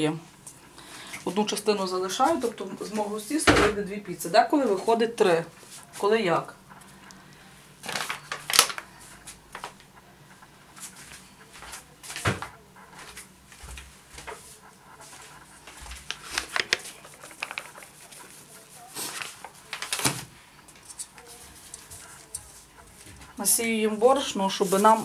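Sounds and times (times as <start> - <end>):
kitchen items knocking and clicking: 3.4 - 3.9.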